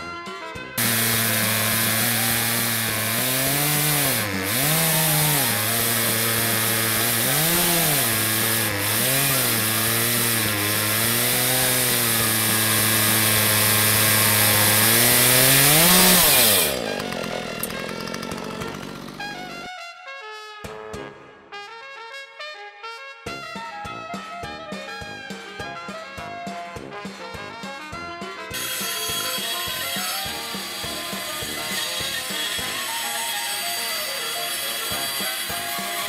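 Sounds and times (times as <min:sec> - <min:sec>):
chainsaw cutting log: 0:00.8 - 0:19.8, 0:28.5 - 0:36.0.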